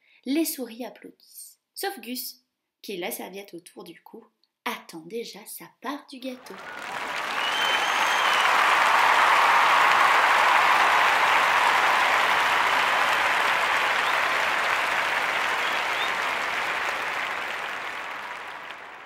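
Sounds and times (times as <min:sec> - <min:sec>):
crowd applauding: 0:06.4 - 0:19.0.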